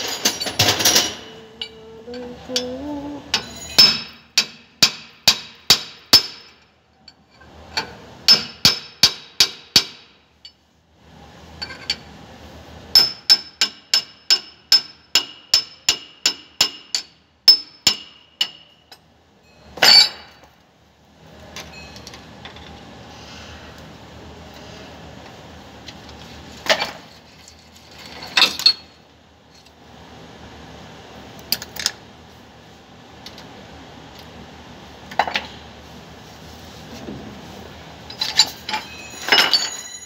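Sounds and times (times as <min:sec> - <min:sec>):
hammer striking steel: 0:03.3 - 0:06.6, 0:08.3 - 0:10.2, 0:13.0 - 0:18.8.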